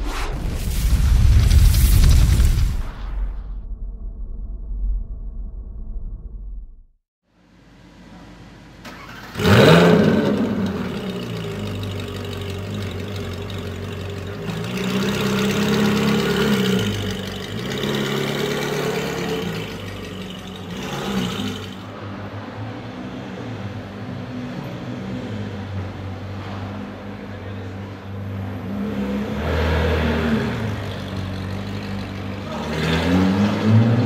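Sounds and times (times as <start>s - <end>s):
sports car engine revving and idling: 9.3s - 34.0s.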